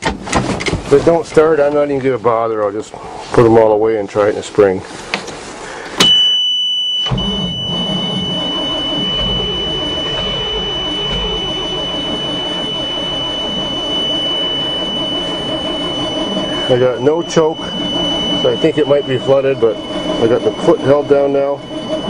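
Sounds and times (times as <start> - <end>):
steady high-pitched tone: 6.0 - 22.0
engine cranking without starting: 7.0 - 22.0.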